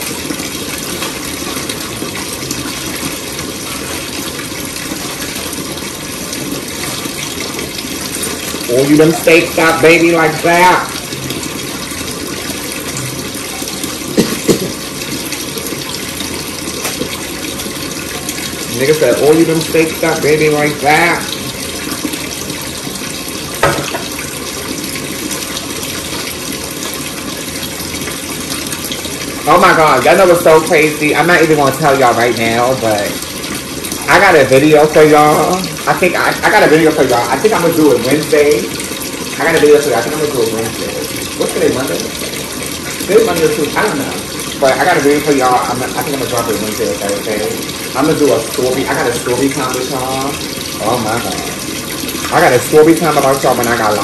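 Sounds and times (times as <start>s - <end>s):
water running from a tap: 0.0s - 54.0s
knock: 14.2s - 14.7s, 23.6s - 24.1s.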